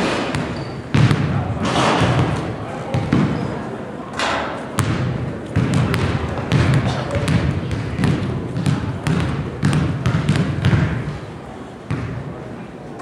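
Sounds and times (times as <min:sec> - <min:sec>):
crowd chatter: 0:00.0 - 0:13.0
basketball bouncing on hardwood floor: 0:00.3 - 0:01.3, 0:04.8 - 0:11.0, 0:11.9 - 0:12.2.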